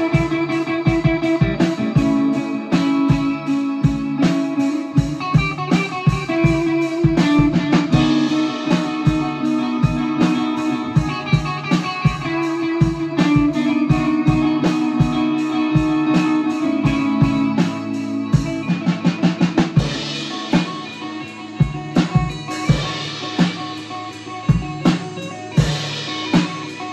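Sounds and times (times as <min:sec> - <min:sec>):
drum kit hits: 0:00.0 - 0:26.9
electric guitar: 0:00.0 - 0:26.9.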